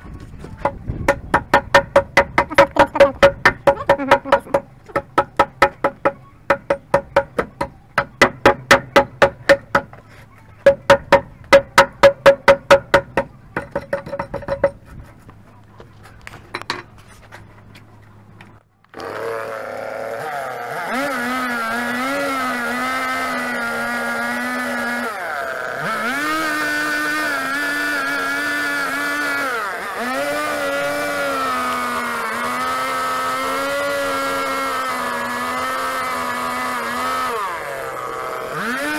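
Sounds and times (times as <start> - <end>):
chainsaw cutting log: 0.5 - 14.8, 18.9 - 38.9
axe chopping wooden log: 0.6 - 10.0.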